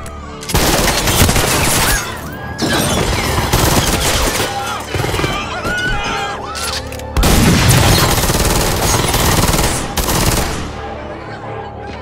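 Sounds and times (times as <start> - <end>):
submachine gun full-auto bursts: 7.8 - 10.6.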